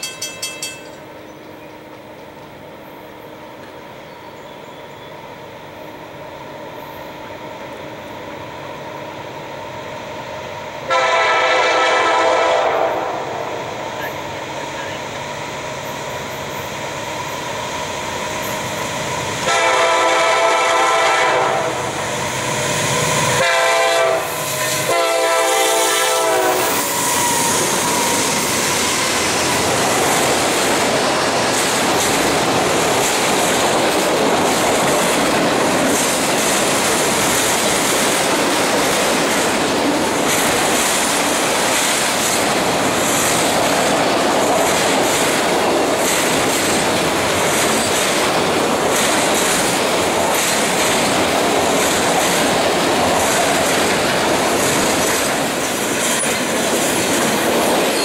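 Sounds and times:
locomotive air horn blasts: 10.9s - 13.4s, 19.4s - 22.0s, 23.4s - 27.4s
freight cars rumbling and clacking: 27.3s - 58.0s.

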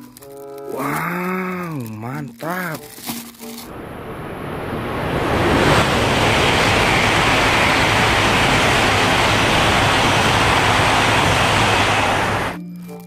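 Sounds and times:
train passing at high speed: 3.7s - 12.6s.

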